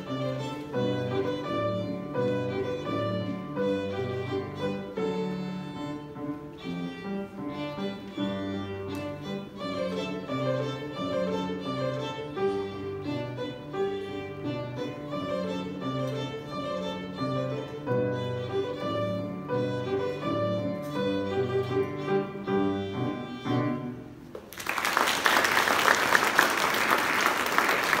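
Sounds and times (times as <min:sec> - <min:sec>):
violin playing: 0:00.0 - 0:24.2
piano accompaniment: 0:00.0 - 0:24.3
audience applause: 0:24.4 - 0:28.0.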